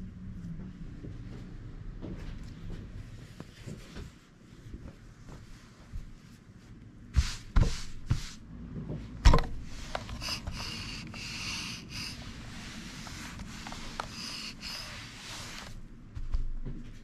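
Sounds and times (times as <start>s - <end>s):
iron rubbing over fabric: 7.1s - 8.4s, 9.6s - 15.8s.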